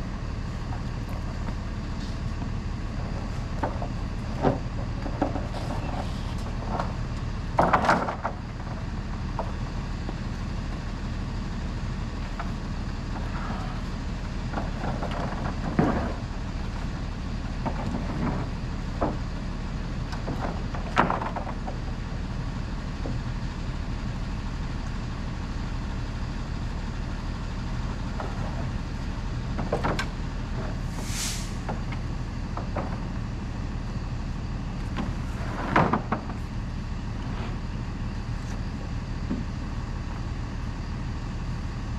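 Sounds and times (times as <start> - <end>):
truck engine idling: 0.0 - 41.9
wooden knocks and clunks: 2.4 - 10.2, 14.5 - 16.4, 17.6 - 19.4, 20.1 - 22.0, 28.0 - 28.8, 29.5 - 30.8, 31.6 - 33.2, 34.9 - 36.4
brief hiss: 30.9 - 31.7.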